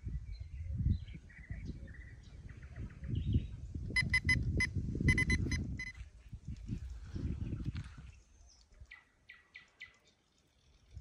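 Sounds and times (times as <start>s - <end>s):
wind rumble on microphone: 0.0s - 9.0s, 10.7s - 11.0s
electronic alarm high beeps: 4.0s - 6.0s.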